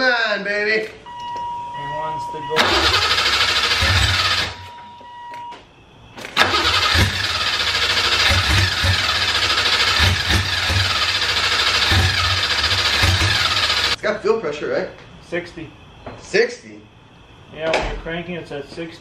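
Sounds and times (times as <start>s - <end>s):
engine cranking and firing unevenly: 2.6s - 4.6s, 6.2s - 14.0s.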